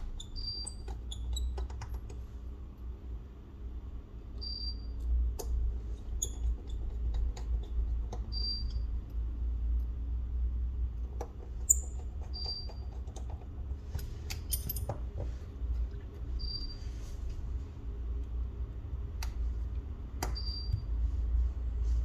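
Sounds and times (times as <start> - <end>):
steady low hum: 0.0 - 22.0
tools clicking and clinking: 11.7 - 15.0.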